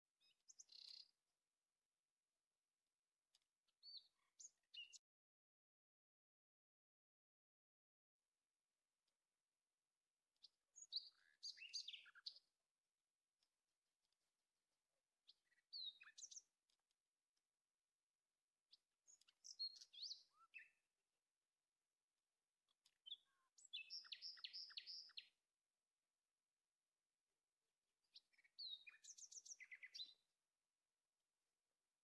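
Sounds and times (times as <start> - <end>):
songbird singing: 0.2 - 1.2, 3.3 - 5.1, 10.4 - 12.6, 15.2 - 16.8, 18.7 - 20.8, 22.7 - 25.4, 28.0 - 30.3.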